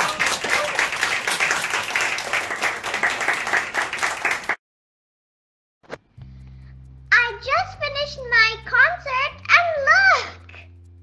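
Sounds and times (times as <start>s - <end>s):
audience applauding: 0.0s - 4.6s.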